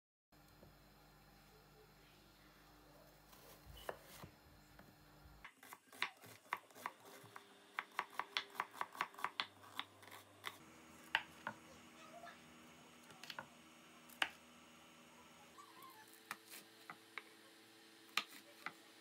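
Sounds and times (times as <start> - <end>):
knife chopping on wooden board: 5.5 - 11.6, 18.1 - 18.8.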